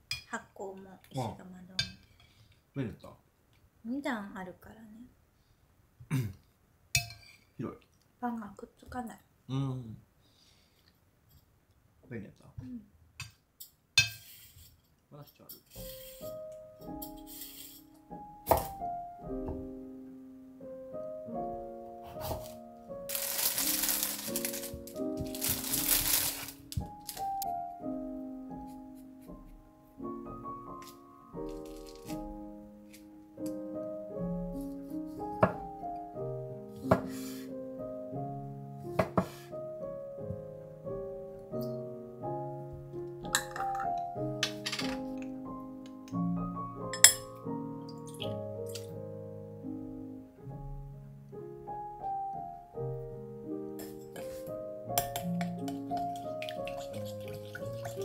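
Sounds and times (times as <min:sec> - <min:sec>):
kitchenware clinking: 0:07.0 - 0:07.5, 0:13.2 - 0:14.7, 0:43.2 - 0:45.3, 0:46.9 - 0:47.4, 0:55.0 - 0:58.0
soft piano music: 0:15.7 - 0:58.0
plastic bag crinkling: 0:23.1 - 0:27.4.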